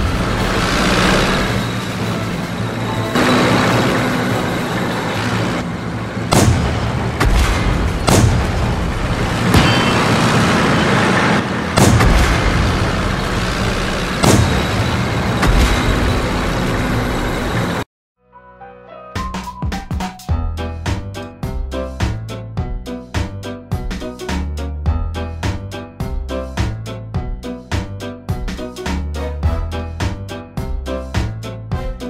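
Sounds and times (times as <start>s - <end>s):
tank engine and tracks rumbling: 0.0s - 17.9s
cannon fire and explosions: 6.2s - 16.9s.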